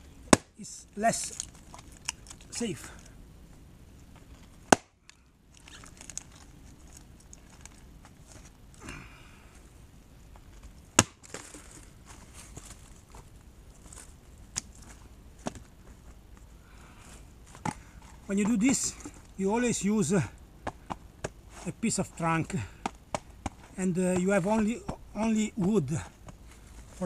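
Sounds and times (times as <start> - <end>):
axe striking log: 0.3 - 0.6, 4.7 - 5.0, 11.0 - 11.4
rustling: 1.1 - 9.7, 10.3 - 19.4, 20.7 - 27.0.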